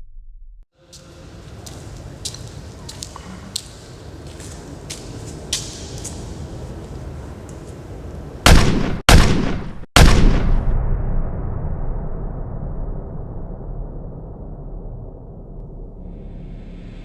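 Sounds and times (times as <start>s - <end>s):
loud gunshots: 8.4s - 10.8s.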